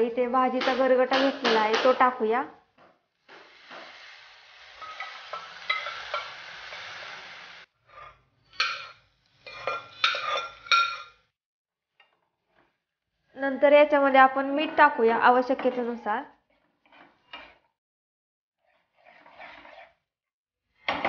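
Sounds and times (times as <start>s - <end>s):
spoon stirring and scraping pan: 2.7s - 11.3s, 16.4s - 17.8s, 18.6s - 20.1s
greens sizzling in hot oil: 3.2s - 7.7s.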